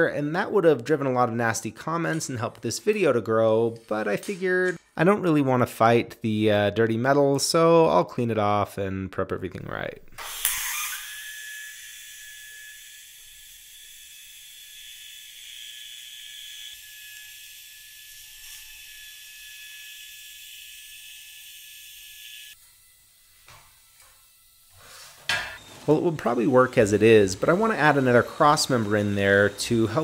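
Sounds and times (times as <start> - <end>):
welding arc hissing: 21.2 - 30.0.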